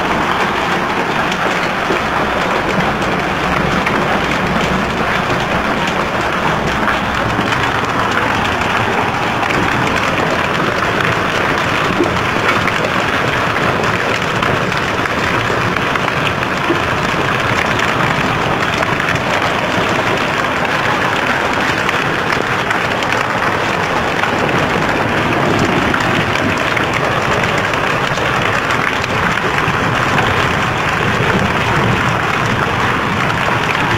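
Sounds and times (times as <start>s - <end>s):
hail and rain pelting concrete: 0.0s - 33.9s.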